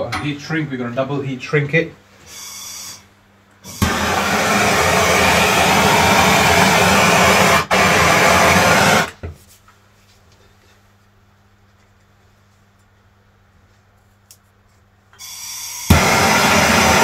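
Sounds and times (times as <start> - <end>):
blowtorch flame burning: 3.6 - 9.2, 15.8 - 17.0.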